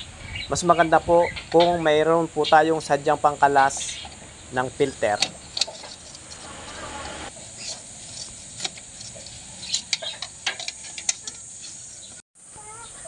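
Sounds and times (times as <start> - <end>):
oil filter wrench clicking: 5.2 - 6.5.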